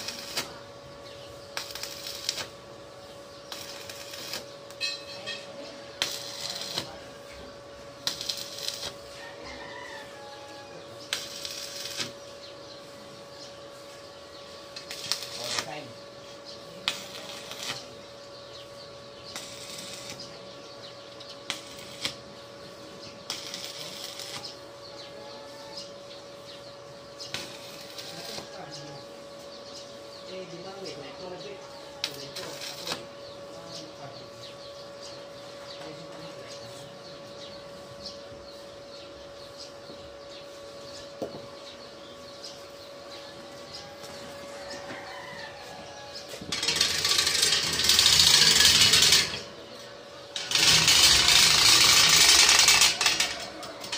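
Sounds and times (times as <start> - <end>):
arc welding crackle: 0.0 - 35.2, 43.4 - 53.9
small birds chirping: 0.0 - 46.8
steady hum: 0.0 - 53.9.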